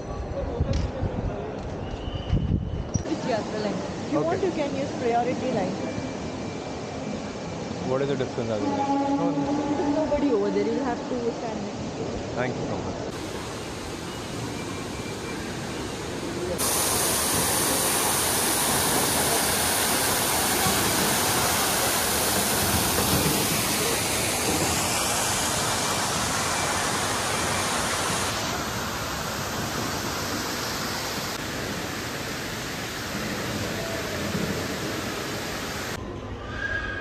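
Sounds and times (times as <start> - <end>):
indoor waterfall rushing: 13.1 - 36.0.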